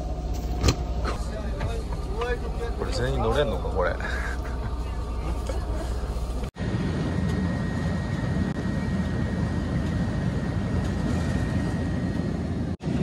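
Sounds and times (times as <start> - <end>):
bus engine and road drone: 0.0 - 13.0
low steady hum: 0.0 - 13.0.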